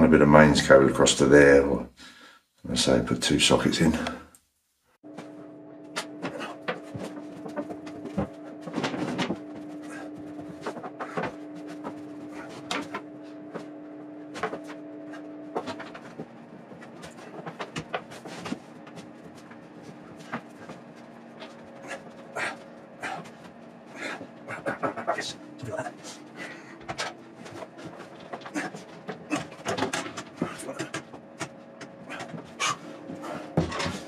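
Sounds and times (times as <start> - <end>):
steady hum: 0.0 - 34.0
rustling and knocks in cupboard: 26.9 - 34.0.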